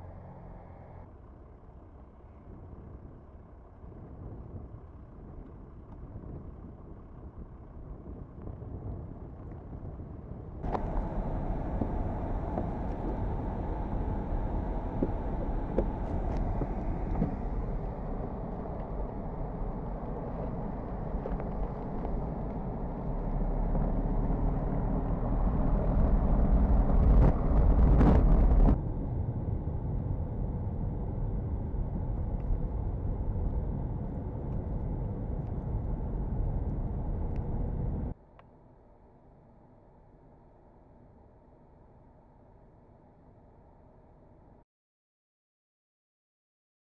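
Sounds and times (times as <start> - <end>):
car driving on snow: 0.0 - 38.2
wind-blown outdoor noise: 0.0 - 44.6.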